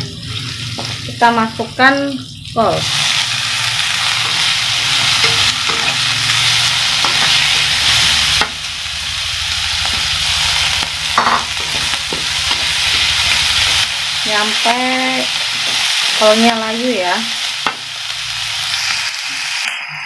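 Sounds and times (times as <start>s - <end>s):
cabbage sizzling in a wok: 0.0s - 20.0s
metal spatula scraping pan: 4.1s - 8.5s.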